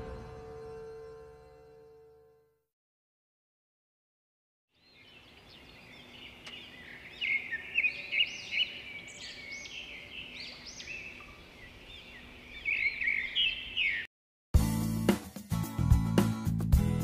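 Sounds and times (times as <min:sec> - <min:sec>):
birds chirping: 0:04.7 - 0:14.1.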